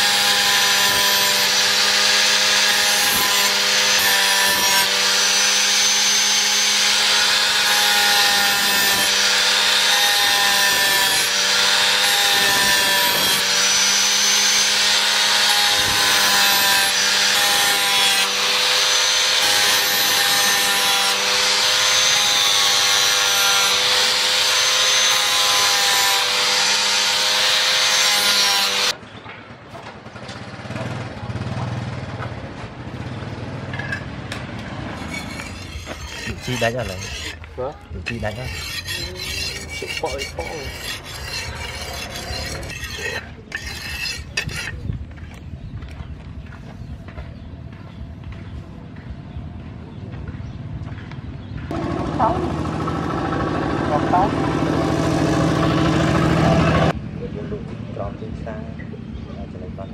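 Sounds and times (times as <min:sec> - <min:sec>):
angle grinder grinding steel: 0:00.0 - 0:29.0, 0:34.8 - 0:44.9, 0:53.9 - 0:57.0.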